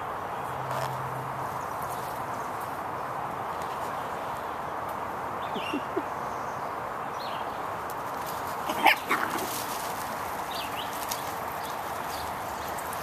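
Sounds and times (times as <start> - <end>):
puppy barking: 8.7 - 9.5.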